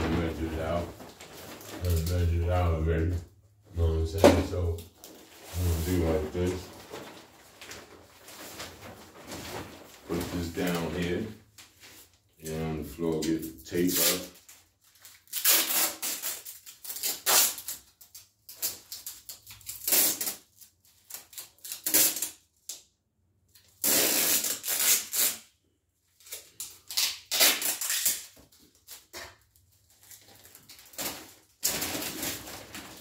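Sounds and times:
adhesive tape pulled off roll: 15.3s - 17.8s, 18.5s - 20.5s, 21.1s - 22.4s, 23.8s - 25.5s, 26.2s - 28.4s.

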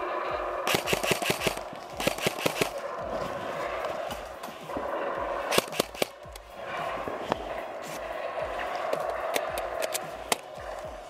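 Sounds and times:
airsoft gun shots: 0.7s - 2.8s, 5.5s - 6.4s.

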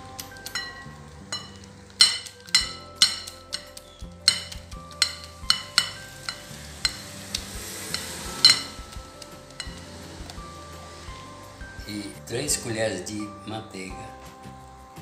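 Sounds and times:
whisk clinking against glass bowl: 0.2s - 11.8s
whisk stirring swish: 2.1s - 11.6s.

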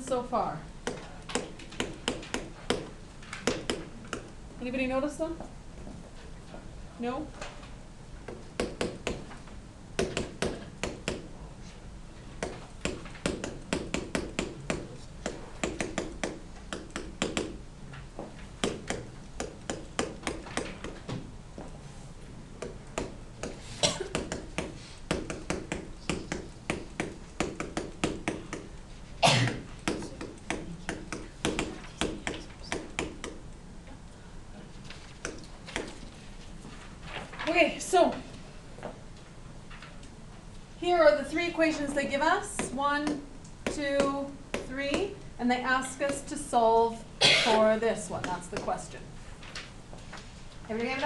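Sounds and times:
stylus clicking on whiteboard: 12.4s - 17.6s, 18.6s - 21.1s, 22.6s - 28.8s, 29.5s - 33.4s, 35.0s - 36.1s.

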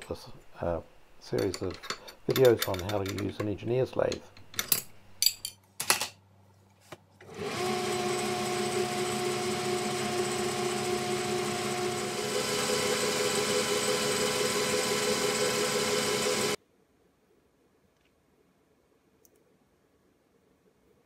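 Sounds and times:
lathe cutting brass: 7.3s - 16.6s
lathe motor humming whine: 7.3s - 16.6s.

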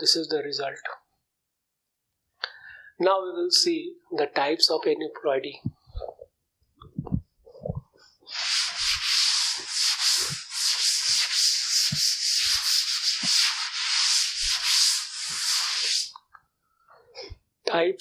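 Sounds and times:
duster rubbing chalkboard: 8.3s - 16.2s.

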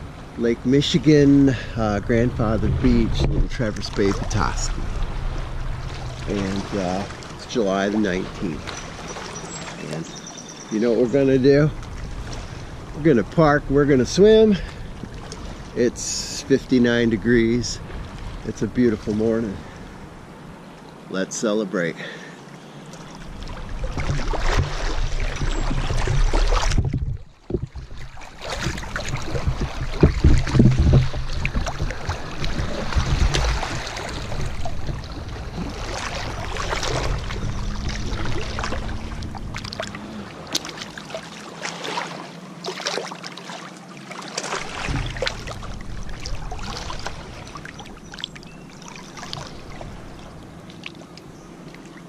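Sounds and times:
water sloshing and splashing: 0.0s - 21.1s, 21.9s - 52.0s
microphone handling rumble: 0.6s - 8.7s, 23.4s - 40.5s, 44.6s - 48.6s.

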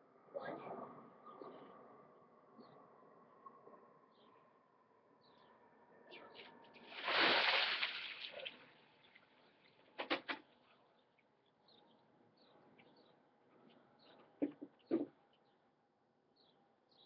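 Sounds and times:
water splashing over person: 6.9s - 8.6s.

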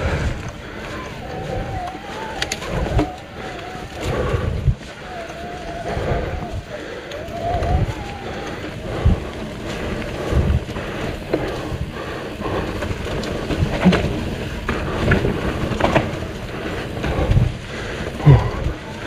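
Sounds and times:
bike tyres rolling on dirt: 0.0s - 19.0s
wind buffeting microphone: 0.0s - 19.0s
bike knocks and rattles: 9.0s - 19.0s.

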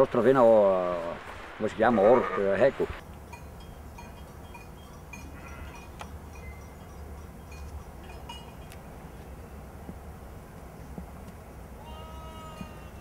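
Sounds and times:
sheep bells clinking: 3.0s - 9.2s, 12.0s - 13.0s.

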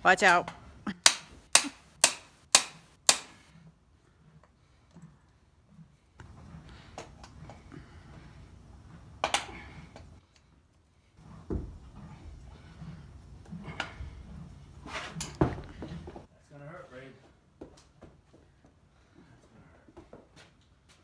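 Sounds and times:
dull thump: 11.4s - 11.9s.

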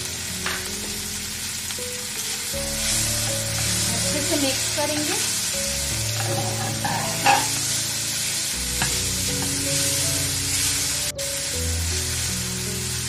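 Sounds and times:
pasta sizzling in frying pan: 0.0s - 13.0s
spatula stirring and scraping: 6.1s - 7.8s.

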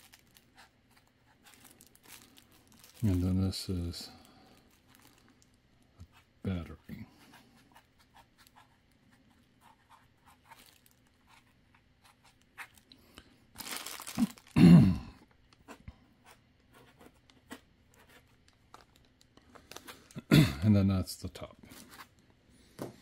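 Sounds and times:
loud rustle and handling noise: 0.0s - 5.6s, 10.3s - 11.5s, 13.5s - 14.6s
plastic wrap crinkling: 0.0s - 5.6s, 10.5s - 11.2s, 13.5s - 14.7s
marker scratching on foam: 6.0s - 10.6s, 11.2s - 12.8s, 15.7s - 18.4s.

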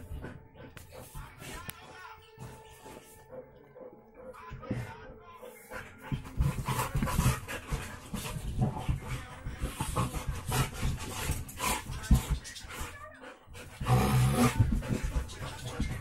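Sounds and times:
dogs panting: 0.0s - 16.0s
dogs scuffling: 5.6s - 16.0s.

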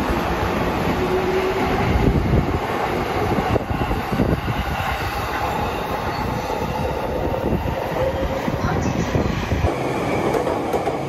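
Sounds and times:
train wheels clattering over rails: 8.5s - 11.0s.

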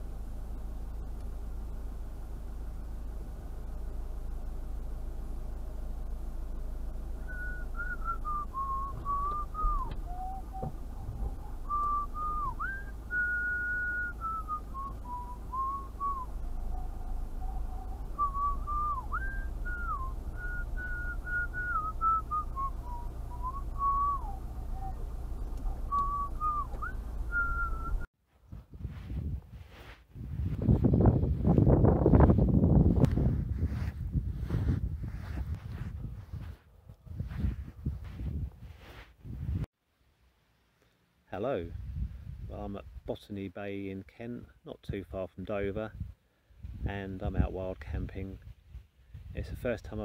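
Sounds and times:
low steady hum: 0.0s - 43.2s
person whistling a tune: 7.3s - 10.8s, 11.6s - 16.3s, 18.2s - 25.0s, 25.9s - 28.1s.

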